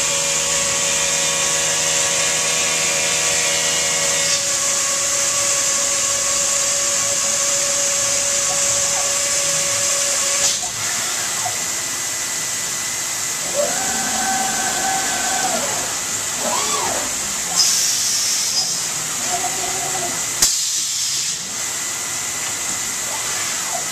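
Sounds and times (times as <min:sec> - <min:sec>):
machine motors whining: 0:13.3 - 0:20.4.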